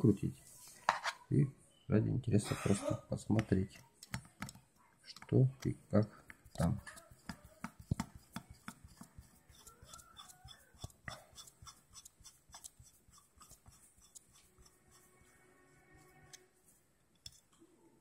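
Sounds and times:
screwdriver clicking and scraping: 6.3 - 15.4, 17.2 - 17.6.

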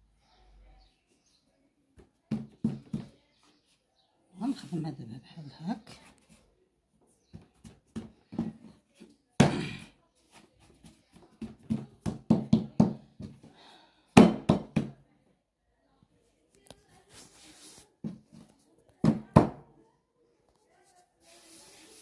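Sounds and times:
hands patting dough on wooden table: 2.0 - 3.2, 7.3 - 9.6, 10.3 - 13.6.

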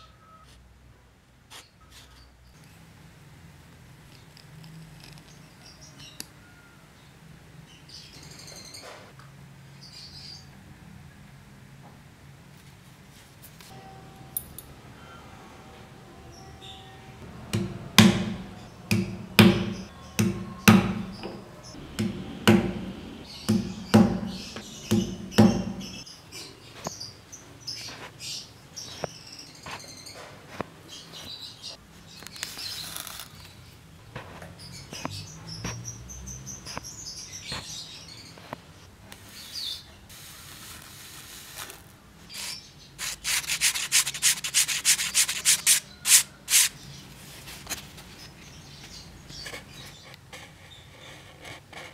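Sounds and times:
thread pulled through leather: 32.3 - 33.5, 40.6 - 44.2
sanding sponge scrubbing leather: 43.0 - 46.7.

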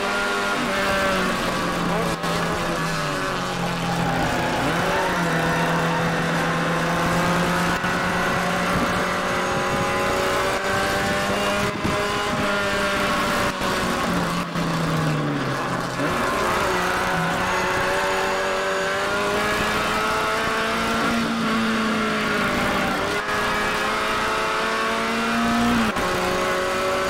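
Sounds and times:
race car engine running hard: 0.0 - 27.0.

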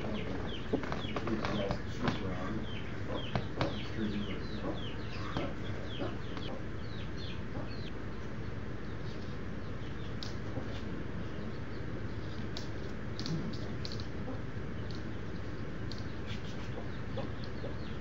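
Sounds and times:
baby chicks peeping: 0.0 - 18.0
rooster pecking at floor: 15.8 - 17.5.

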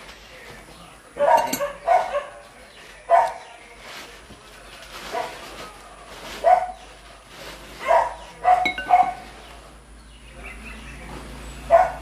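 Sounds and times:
dog barking: 1.2 - 2.4, 3.1 - 3.5, 6.4 - 6.8, 7.8 - 9.3, 11.7 - 12.0.

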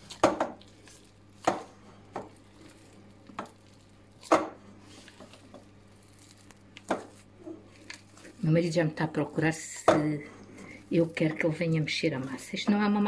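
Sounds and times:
dough thumping in glass bowl: 0.0 - 0.7, 1.4 - 2.4, 3.2 - 5.7.

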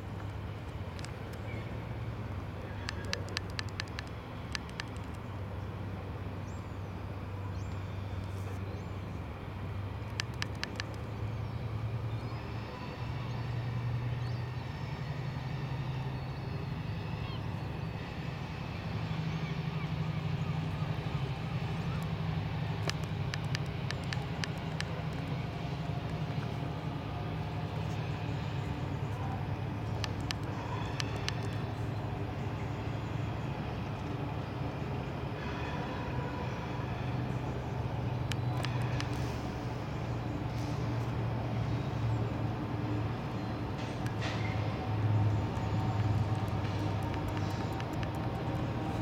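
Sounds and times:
distant diesel locomotive droning: 0.0 - 49.0
sharp clicks: 2.8 - 5.2, 10.0 - 11.1, 22.7 - 26.4, 29.9 - 31.7, 38.2 - 39.4, 45.3 - 49.0.

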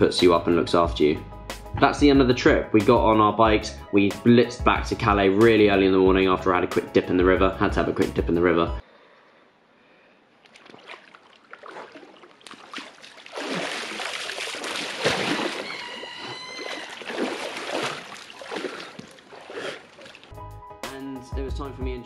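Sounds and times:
water splashing and sloshing: 10.3 - 20.4.

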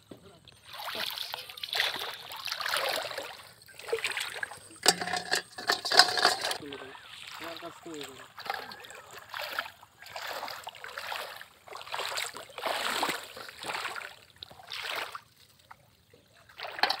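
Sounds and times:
water splashing from wading feet: 0.7 - 4.4, 8.3 - 15.3.

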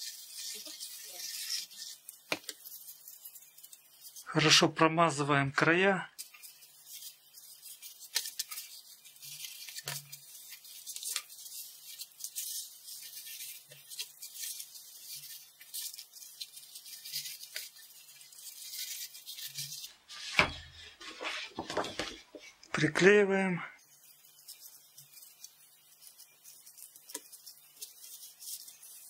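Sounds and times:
card scraping over cardboard: 18.5 - 22.6
cardboard sheet rustling thump: 20.2 - 22.2.

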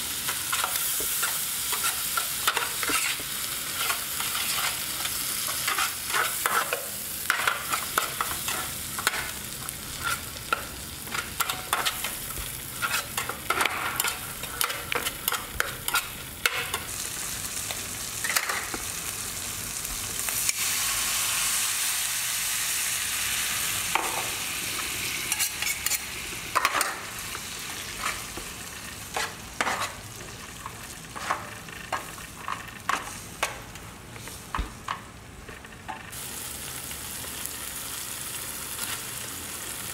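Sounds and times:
oil sizzling: 0.0 - 35.2, 36.1 - 39.9
spatula scraping a frying pan: 0.4 - 16.9, 25.2 - 26.9, 27.8 - 28.4, 29.1 - 33.2
water hissing in hot pan: 20.3 - 26.6, 36.1 - 39.9.

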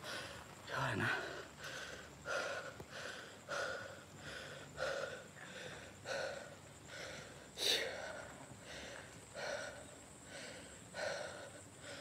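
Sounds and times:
man breathing hard: 0.0 - 12.0.

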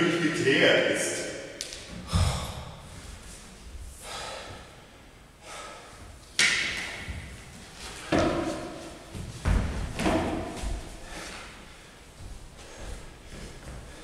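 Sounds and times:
man breathing loudly: 2.0 - 6.2, 10.8 - 14.0
chair thud on concrete floor: 9.4 - 10.6.

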